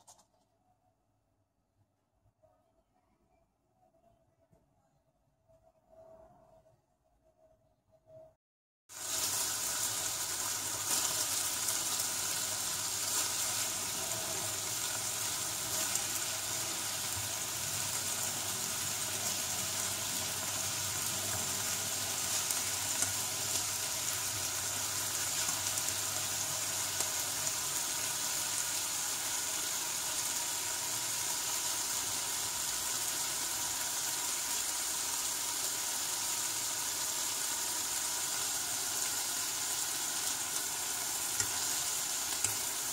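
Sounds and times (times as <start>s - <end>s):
sausages sizzling in oil: 8.9s - 42.9s.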